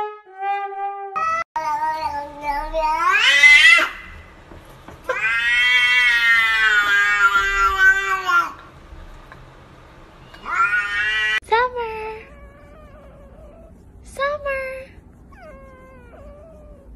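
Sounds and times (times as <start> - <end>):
cat meowing: 0.3 - 4.3, 5.1 - 8.6, 10.2 - 11.4.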